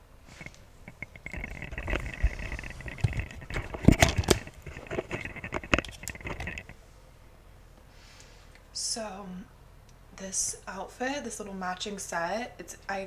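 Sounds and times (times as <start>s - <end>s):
camera handling noise: 0.4s - 6.7s.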